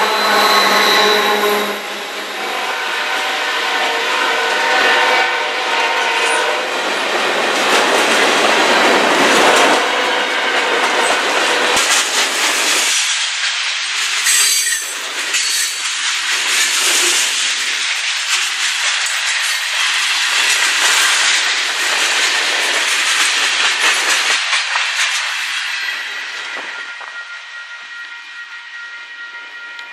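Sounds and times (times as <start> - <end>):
train wheels clattering over rails: 6.7 - 27.2.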